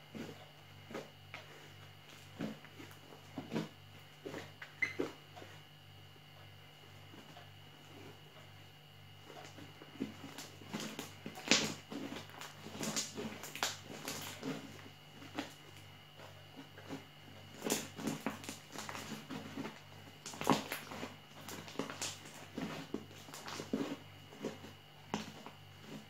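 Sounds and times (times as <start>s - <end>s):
slime squishing by hand: 9.2s - 26.0s.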